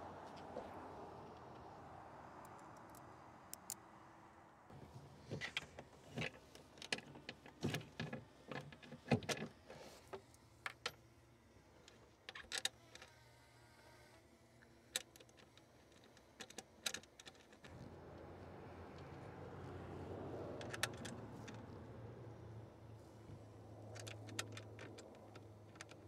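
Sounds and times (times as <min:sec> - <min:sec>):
quick runs of clicks: 0:23.4 - 0:26.0.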